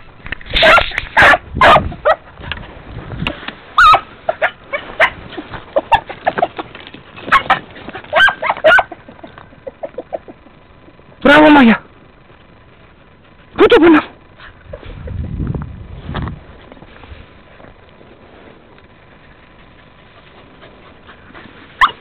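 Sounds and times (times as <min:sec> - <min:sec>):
beagles barking and yelping: 0:00.5 - 0:02.6, 0:03.7 - 0:11.1, 0:18.9 - 0:22.0.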